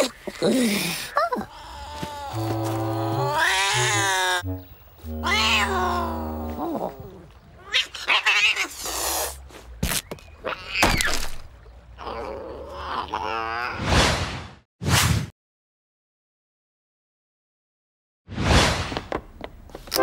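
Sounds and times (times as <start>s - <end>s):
low held notes: 2.3s - 7.3s
cartoon cat yowling: 3.2s - 4.4s, 5.2s - 6.3s.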